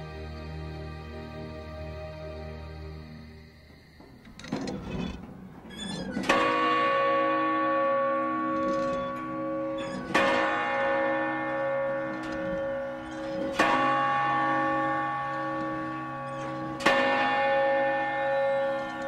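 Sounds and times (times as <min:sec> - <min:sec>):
large bell tolling: 0:05.5 - 0:19.0.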